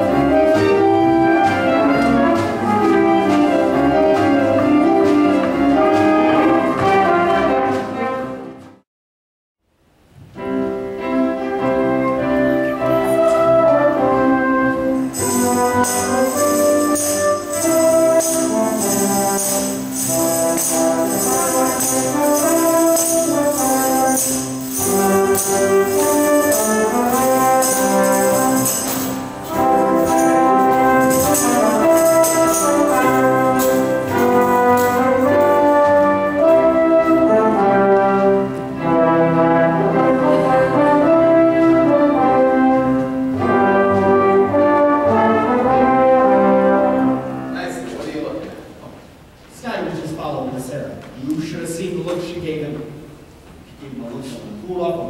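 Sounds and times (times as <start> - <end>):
brassy orchestral music: 0.0 - 8.8, 10.4 - 48.4
tambourine: 15.0 - 37.2.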